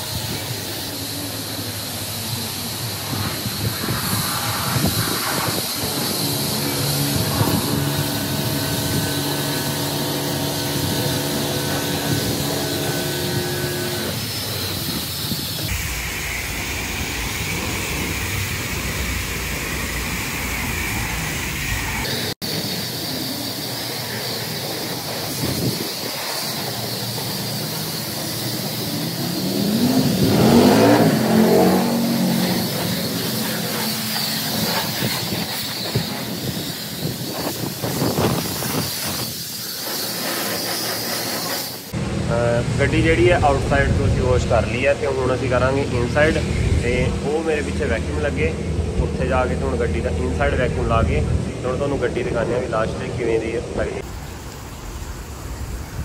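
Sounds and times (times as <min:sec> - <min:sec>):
rising sweep: 0:00.0 - 0:38.6
pressure washer spraying: 0:00.0 - 0:42.0.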